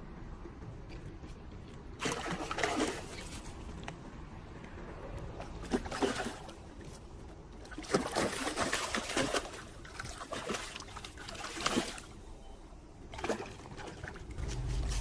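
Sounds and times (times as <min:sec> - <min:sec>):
fish splashing in water: 0:02.0 - 0:03.5, 0:05.6 - 0:06.6, 0:07.6 - 0:12.2.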